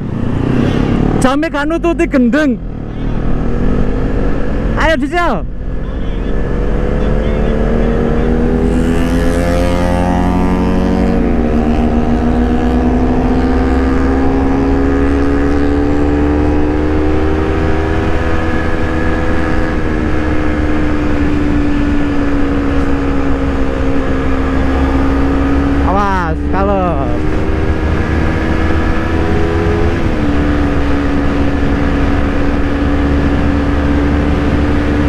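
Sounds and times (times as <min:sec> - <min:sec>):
motorcycle engine accelerating: 0:00.0 - 0:35.0
wind rushing on microphone: 0:26.4 - 0:35.0.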